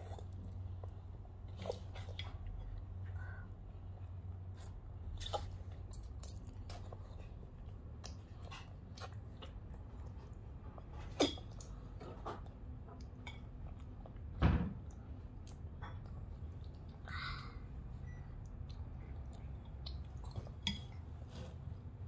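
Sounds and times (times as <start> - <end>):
children chewing: 0.0 - 14.3, 14.9 - 21.9.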